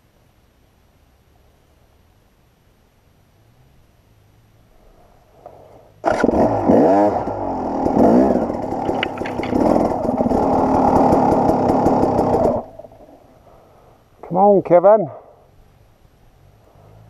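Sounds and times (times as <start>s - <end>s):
dirt bike engine revving: 6.0s - 13.2s
sharp clicks: 8.7s - 10.0s.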